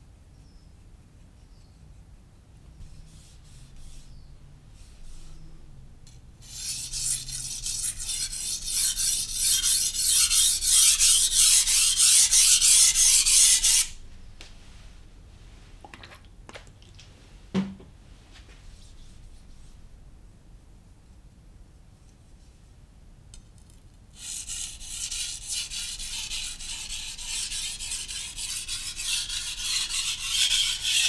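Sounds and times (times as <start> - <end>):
knife scraping on whetstone: 6.4 - 13.9, 25.0 - 31.0
short knock: 17.5 - 17.9.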